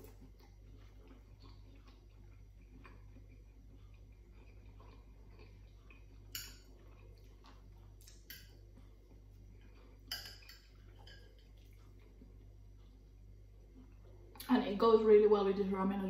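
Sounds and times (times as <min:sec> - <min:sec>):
fork clinking and scraping plate: 0:05.9 - 0:07.0, 0:08.2 - 0:08.6, 0:09.8 - 0:11.8.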